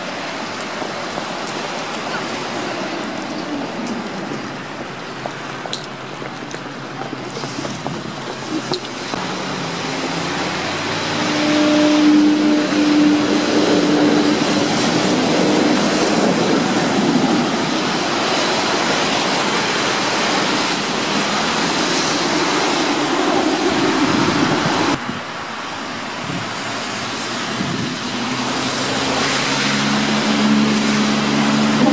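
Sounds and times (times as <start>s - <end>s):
tram wheels rolling on rails: 0.0s - 25.0s.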